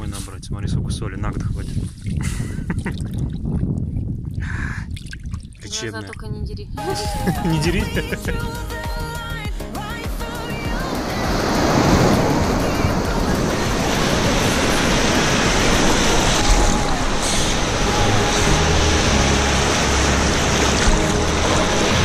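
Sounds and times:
sea surf breaking: 0:09.9 - 0:22.0.

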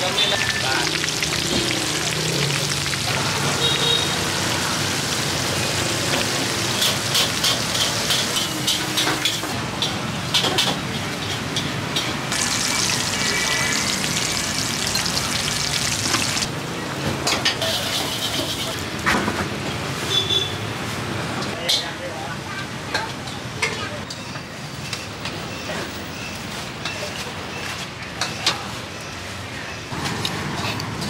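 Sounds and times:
food deep-frying in oil: 0:00.0 - 0:16.5.

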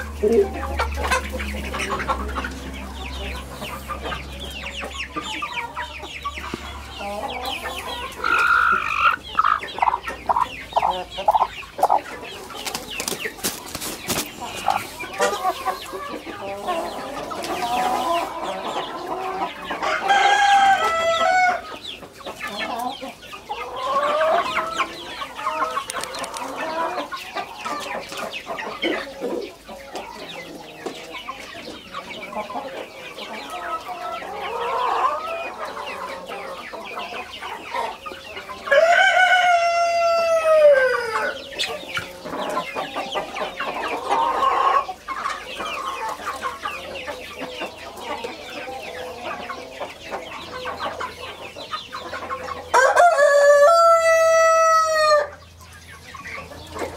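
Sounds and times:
chickens clucking: 0:00.0 - 0:56.9
rooster crowing: 0:19.8 - 0:21.7, 0:38.7 - 0:41.4, 0:52.7 - 0:55.4.

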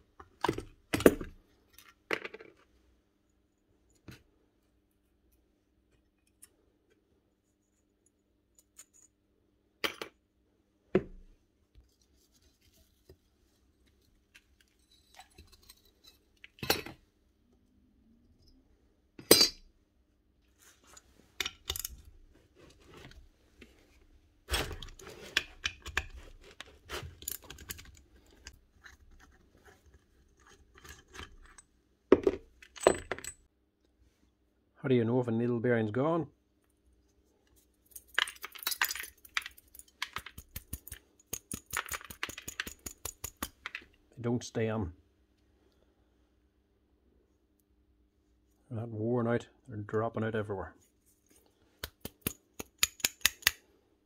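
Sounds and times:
metal parts clinking on workbench: 0:19.2 - 0:19.7, 0:21.4 - 0:22.1, 0:31.1 - 0:33.4, 0:37.9 - 0:43.8.

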